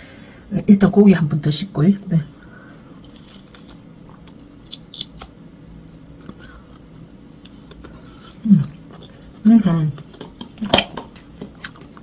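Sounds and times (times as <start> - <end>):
person humming: 8.3 - 8.8
wet chewing and smacking: 10.0 - 12.0.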